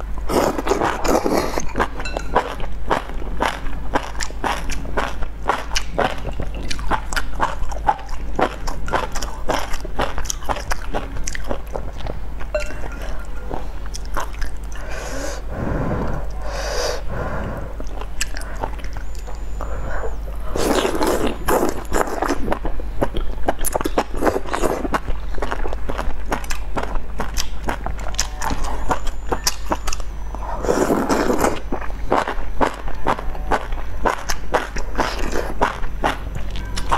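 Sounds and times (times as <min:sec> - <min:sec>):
wet chewing: 0:00.0 - 0:14.9, 0:17.5 - 0:36.9
slurping: 0:00.3 - 0:02.6, 0:12.9 - 0:22.6, 0:30.4 - 0:32.3
lip smacks: 0:17.8 - 0:19.1.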